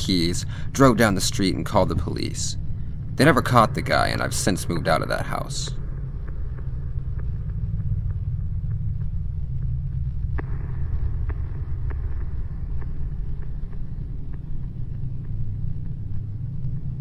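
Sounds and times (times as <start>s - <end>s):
low rumbling ambience: 0.0s - 17.0s.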